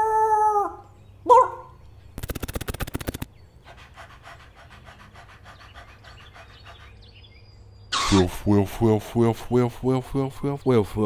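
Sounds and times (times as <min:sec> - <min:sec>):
dog-style panting: 0:03.5 - 0:07.3.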